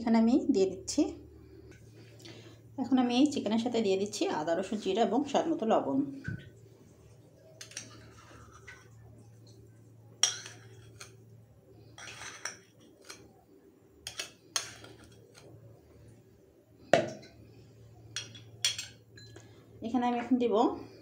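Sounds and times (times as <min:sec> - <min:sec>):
metal spoon clinking on ceramic bowl: 0:10.2 - 0:11.2, 0:14.1 - 0:15.2, 0:18.2 - 0:19.4.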